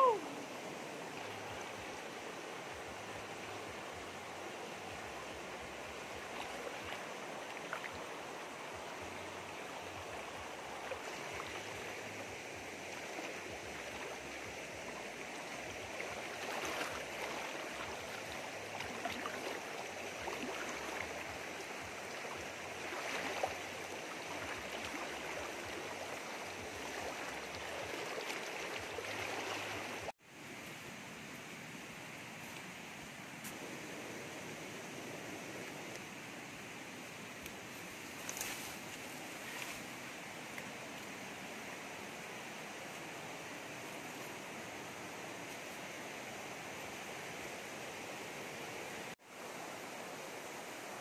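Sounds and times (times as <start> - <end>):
stream running over rocks: 0.0 - 51.0
splashes in water: 16.0 - 21.3.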